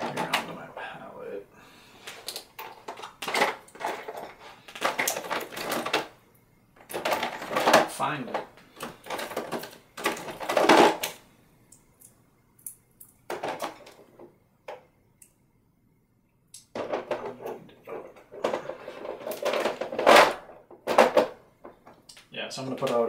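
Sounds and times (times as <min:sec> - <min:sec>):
paint tubes rattling and clattering: 0:00.0 - 0:00.9, 0:02.0 - 0:06.2, 0:06.8 - 0:11.2, 0:13.3 - 0:14.3, 0:16.7 - 0:22.1.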